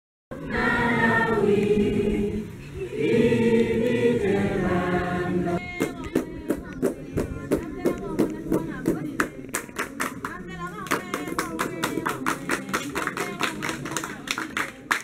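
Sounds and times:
group singing in chorus: 0:00.3 - 0:06.6
rhythmic hand-clapping: 0:05.7 - 0:15.0.

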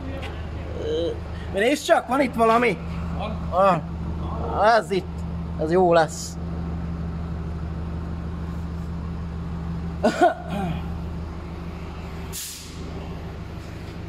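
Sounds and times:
vehicle engine idling: 0:00.0 - 0:14.0
sharp hiss of air: 0:12.3 - 0:12.8.

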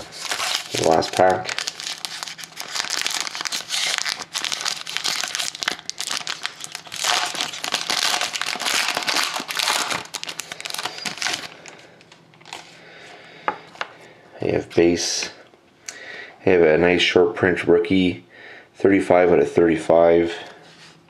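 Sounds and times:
foil wrapper crinkling and tearing: 0:00.0 - 0:12.7.

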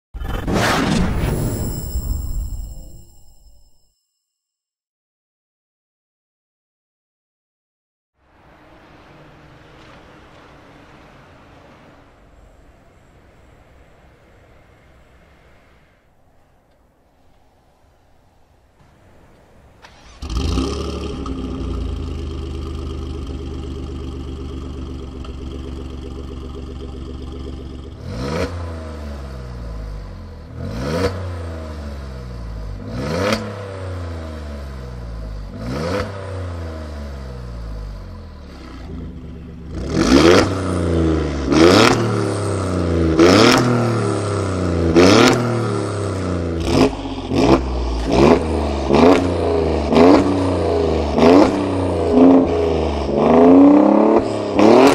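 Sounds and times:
car engine starting and idling: 0:08.2 - 0:54.9
engine revving: 0:19.8 - 0:54.9.

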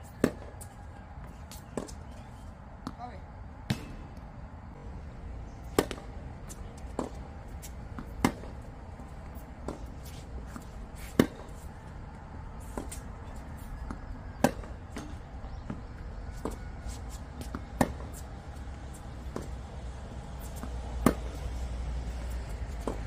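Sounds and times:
tennis ball hit by rackets: 0:00.1 - 0:00.6, 0:03.7 - 0:04.1, 0:05.6 - 0:08.7, 0:09.6 - 0:11.7, 0:13.8 - 0:19.7, 0:20.4 - 0:23.0
tennis ball bouncing on court: 0:03.7 - 0:04.0, 0:05.6 - 0:11.7, 0:13.8 - 0:23.0.

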